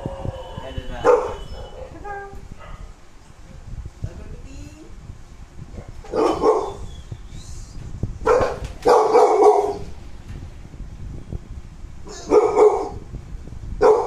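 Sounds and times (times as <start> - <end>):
dog barking: 1.0 - 2.0, 2.6 - 3.0, 6.1 - 6.8, 8.2 - 9.8, 12.1 - 13.1, 13.8 - 14.0.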